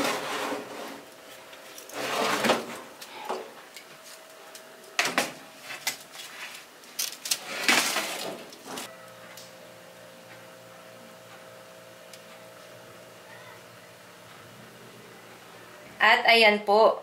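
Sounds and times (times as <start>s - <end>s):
metal tray scraping on oven rack: 0.0s - 1.1s, 1.9s - 2.8s.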